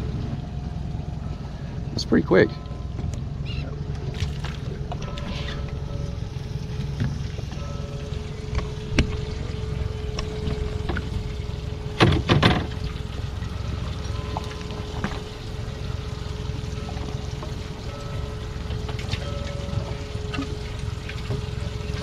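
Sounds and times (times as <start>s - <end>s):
steady hum: 0.0s - 22.0s
water pouring and trickling: 0.0s - 22.0s
knocking and splashing: 4.0s - 5.4s, 8.4s - 17.8s.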